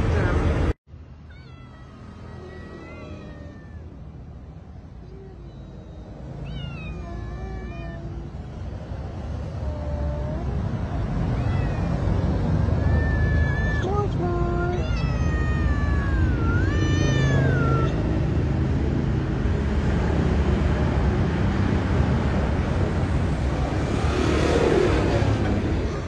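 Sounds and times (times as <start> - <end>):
cats meowing: 1.2 - 8.6, 9.4 - 18.4, 24.3 - 26.0.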